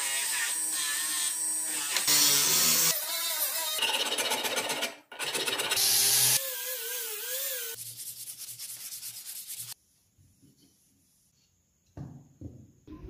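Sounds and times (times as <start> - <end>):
sandpaper scraping wood: 6.4 - 9.8.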